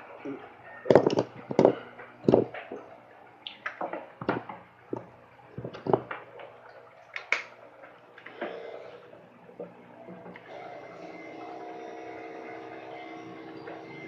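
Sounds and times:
tools clicking and knocking: 0:00.9 - 0:02.8, 0:04.2 - 0:06.2.

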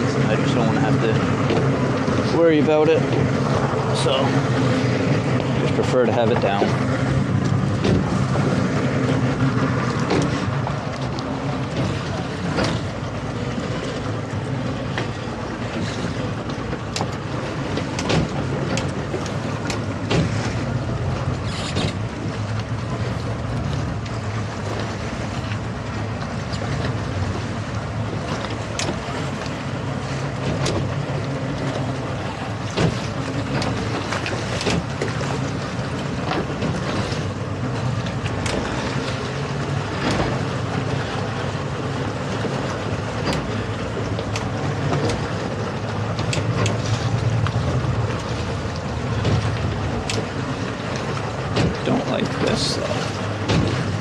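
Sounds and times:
boat engine idling: 0:00.0 - 0:54.0
wind buffeting microphone: 0:00.0 - 0:54.0.

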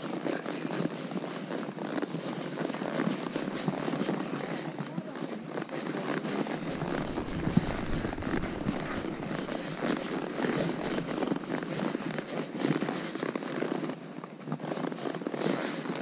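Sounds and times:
hooves on rock and gravel: 0:00.0 - 0:13.2
wind buffeting microphone: 0:06.5 - 0:11.9.

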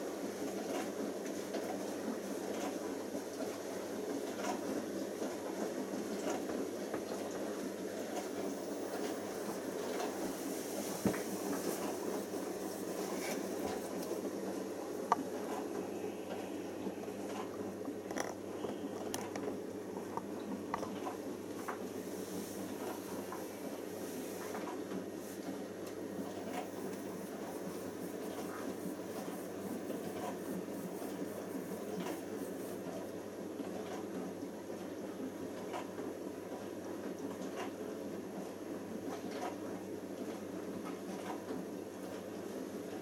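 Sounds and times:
washing machine drum churning: 0:02.7 - 0:33.1.

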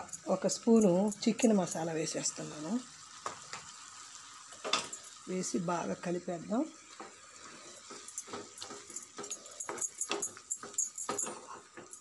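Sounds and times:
spatula scraping a pan: 0:07.0 - 0:12.0.

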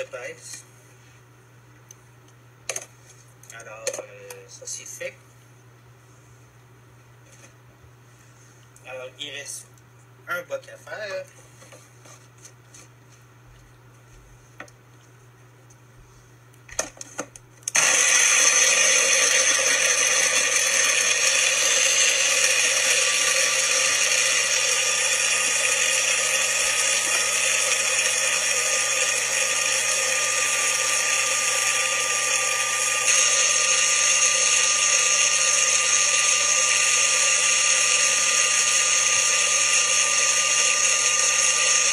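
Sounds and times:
blender running: 0:17.7 - 0:41.9.

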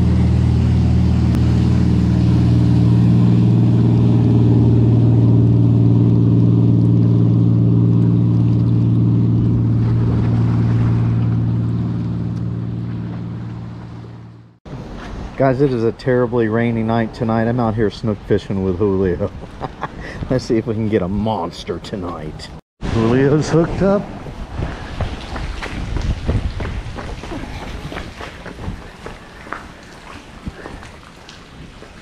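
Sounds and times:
boat engines droning: 0:00.0 - 0:24.6.

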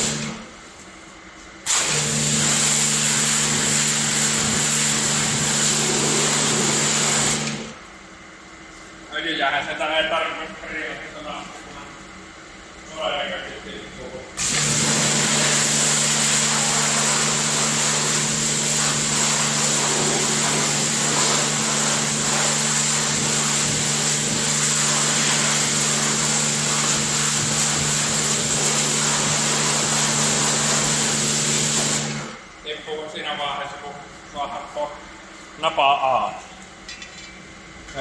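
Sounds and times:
pressure washer water jet hissing: 0:00.0 - 0:00.4, 0:01.7 - 0:07.7, 0:14.4 - 0:32.4
pump motor humming: 0:00.0 - 0:00.4, 0:01.7 - 0:07.8, 0:14.4 - 0:32.4.

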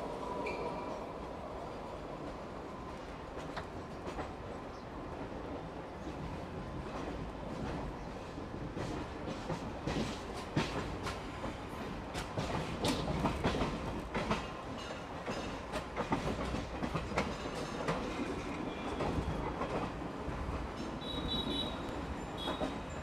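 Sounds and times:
rumble of wheels on rail: 0:00.0 - 0:23.0
wheels clicking over rail joints: 0:08.7 - 0:21.5.

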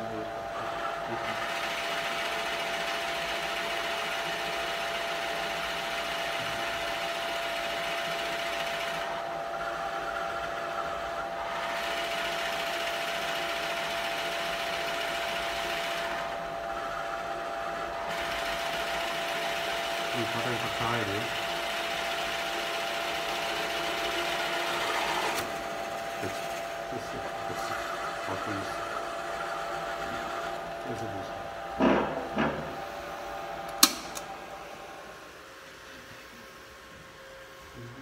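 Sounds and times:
drill press motor hum: 0:00.0 - 0:37.8
drill bit boring into wood: 0:18.0 - 0:31.0.

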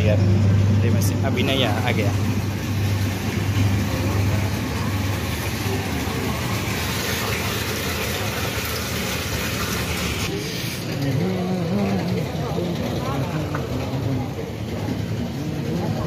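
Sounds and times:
water gushing from hose: 0:01.4 - 0:10.8.

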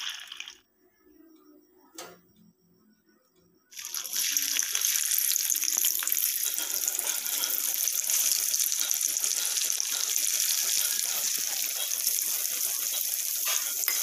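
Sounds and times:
oil sizzling and crackling: 0:00.0 - 0:00.6, 0:03.7 - 0:14.0.

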